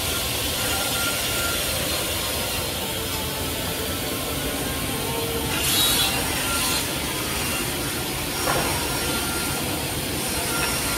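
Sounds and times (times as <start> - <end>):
table saw whirring: 0.0 - 10.9.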